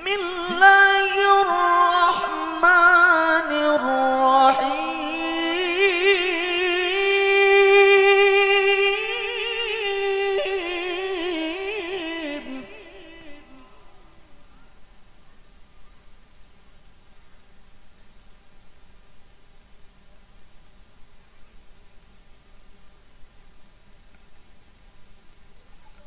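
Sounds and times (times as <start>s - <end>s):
man chanting through microphone: 0.0s - 14.4s.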